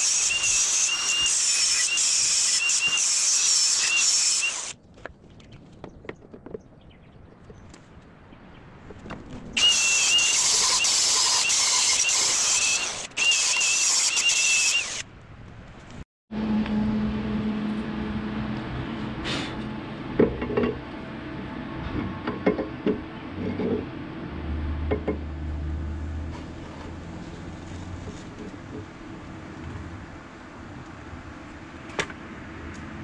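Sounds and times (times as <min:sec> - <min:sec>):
angle grinder grinding metal: 0:00.0 - 0:04.8, 0:09.6 - 0:15.0.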